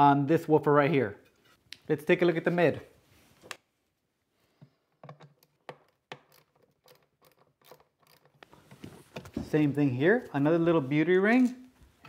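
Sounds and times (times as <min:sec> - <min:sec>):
screwdriver clicks and scratches: 0:05.0 - 0:08.5.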